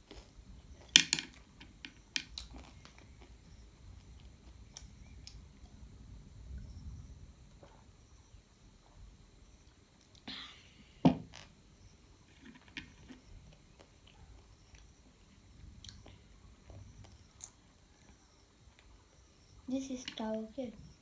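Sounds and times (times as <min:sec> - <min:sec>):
breathy hiss: 0:10.2 - 0:11.1.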